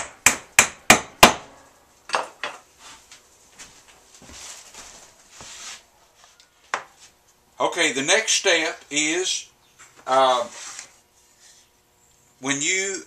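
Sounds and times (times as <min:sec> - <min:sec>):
faint scraping: 0:10.4 - 0:11.8.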